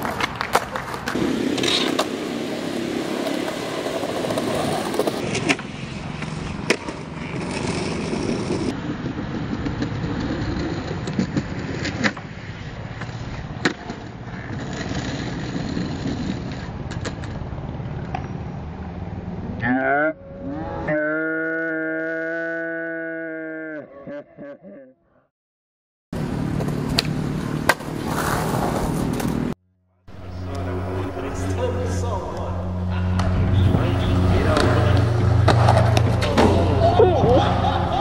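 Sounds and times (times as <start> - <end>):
skateboard clacks: 0.0 - 12.3
skateboard wheels rolling on concrete: 0.0 - 19.5, 26.2 - 30.7, 32.7 - 38.0
rising glide into held tone: 30.1 - 37.8.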